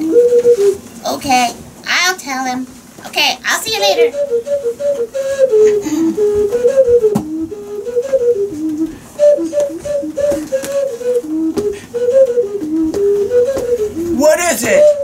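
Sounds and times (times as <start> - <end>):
person whistling a bouncy tune: 3.8 - 15.0.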